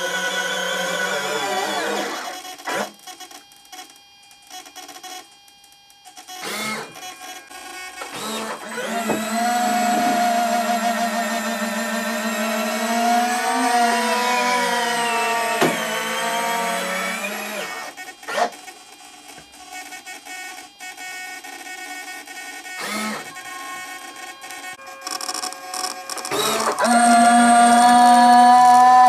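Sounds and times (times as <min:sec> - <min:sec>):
landing gear motor whining: 0:06.3 - 0:18.5, 0:22.8 - 0:29.0.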